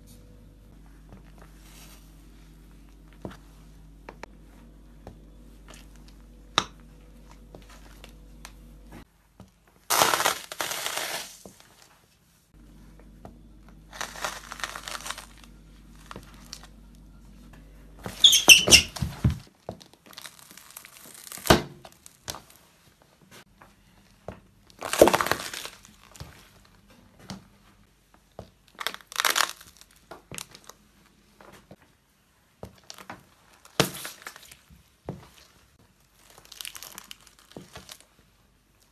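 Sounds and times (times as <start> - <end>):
shoe crushing packaging: 9.9 - 11.6, 13.9 - 16.6, 24.8 - 26.3, 28.8 - 30.5.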